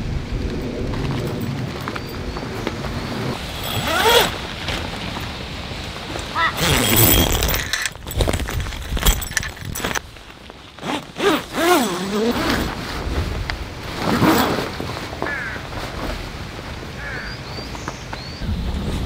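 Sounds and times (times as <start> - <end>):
tarp fabric rustling: 0.5 - 17.2
zipper buzzing: 3.1 - 4.8, 6.4 - 8.3, 10.8 - 13.0, 14.0 - 14.8.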